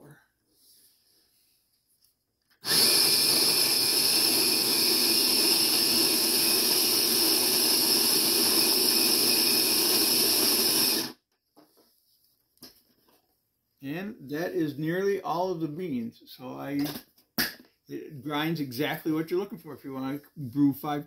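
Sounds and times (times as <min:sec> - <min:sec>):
electric coffee grinder grinding: 0:02.6 - 0:11.2.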